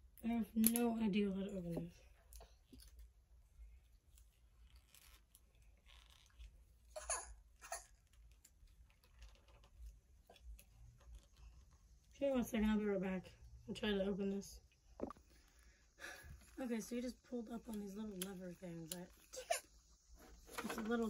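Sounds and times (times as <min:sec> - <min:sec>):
faint clicks and rustles: 0:01.6 - 0:12.8.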